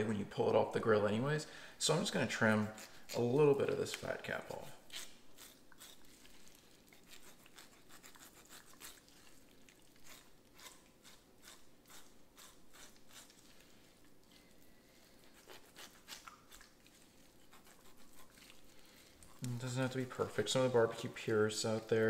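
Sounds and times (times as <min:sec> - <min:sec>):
knife slicing through fat: 0:02.4 - 0:14.5, 0:15.2 - 0:18.7.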